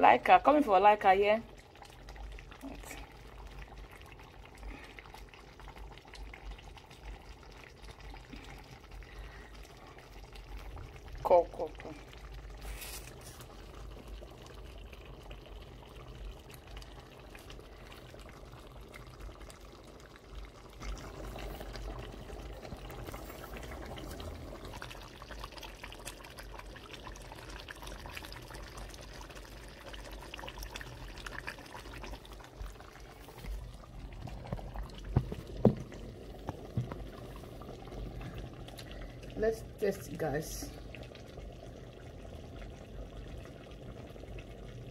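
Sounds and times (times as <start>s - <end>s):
soup bubbling in a pot: 0.0s - 44.9s
knocks: 35.1s - 35.9s.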